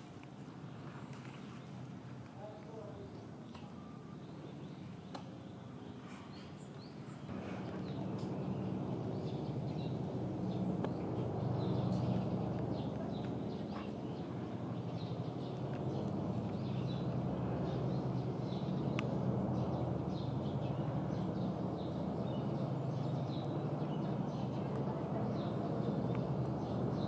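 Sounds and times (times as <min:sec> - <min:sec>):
small birds chirping: 0:00.2 - 0:27.0
steady low hum: 0:07.3 - 0:27.0.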